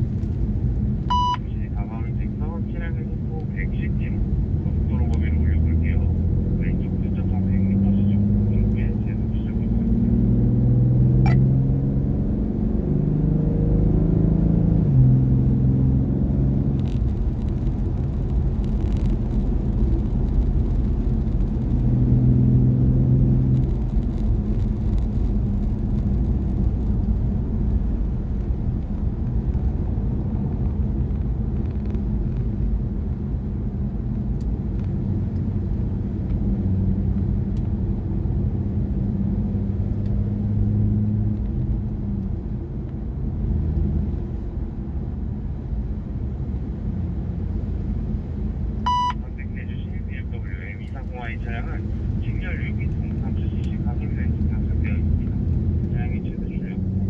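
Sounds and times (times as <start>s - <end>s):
tyre and road rumble: 2.8s - 57.0s
car engine accelerating through gears: 4.2s - 57.0s.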